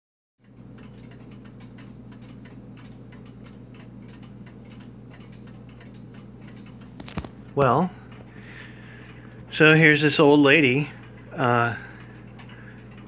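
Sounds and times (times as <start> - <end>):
clock ticking: 0.4 - 13.0.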